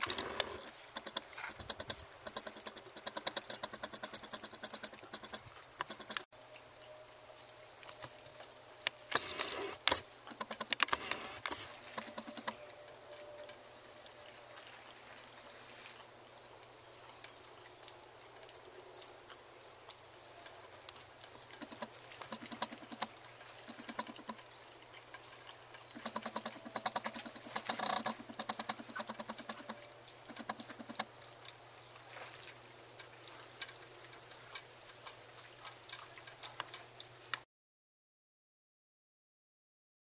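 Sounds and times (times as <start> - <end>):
dog licking bowl: 16.6 - 37.4.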